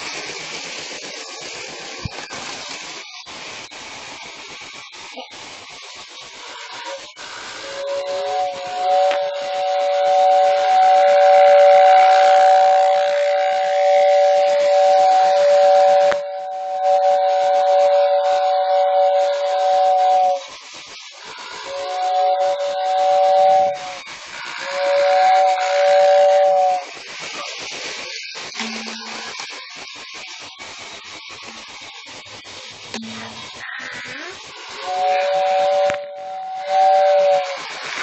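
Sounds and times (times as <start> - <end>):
steady hiss: 0.0 - 38.0
toy train whistle: 6.4 - 27.0, 28.5 - 29.6, 32.9 - 38.0.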